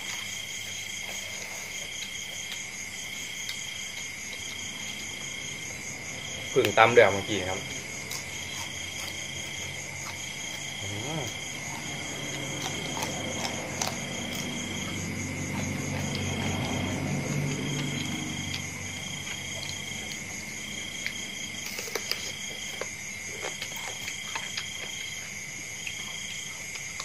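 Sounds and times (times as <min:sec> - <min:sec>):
continuous high insect trill: 0:00.0 - 0:27.0
higher intermittent insect trill: 0:00.0 - 0:27.0.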